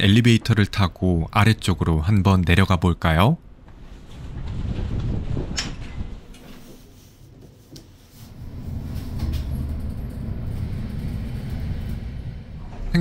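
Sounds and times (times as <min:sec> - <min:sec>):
inclined elevator rumbling on track: 0:03.6 - 0:06.9, 0:07.6 - 0:13.0.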